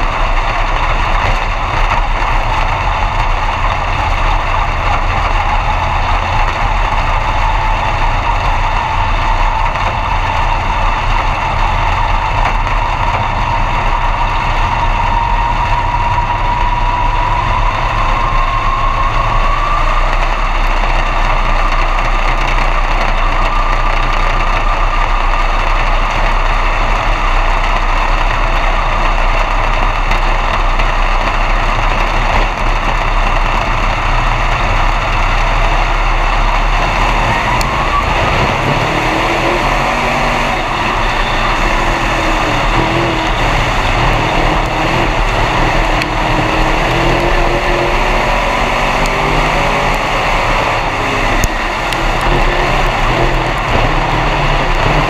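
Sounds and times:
race car engine running: 0.0s - 55.0s.

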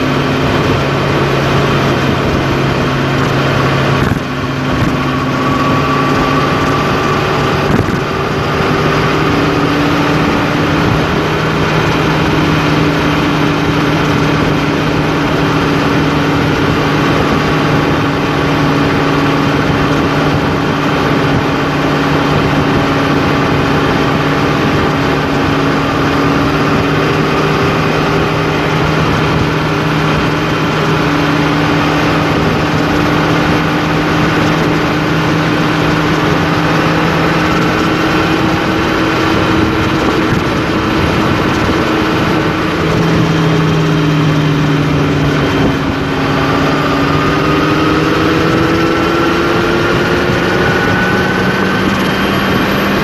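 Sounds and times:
road noise: 0.0s - 53.0s
vehicle engine drone: 0.0s - 53.0s.

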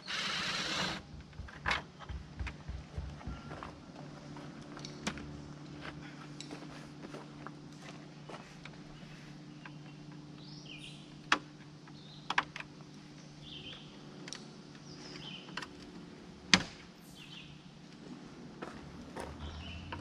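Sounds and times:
birds chirping: 8.2s - 14.1s, 14.7s - 15.8s, 17.0s - 17.8s, 19.2s - 20.0s.

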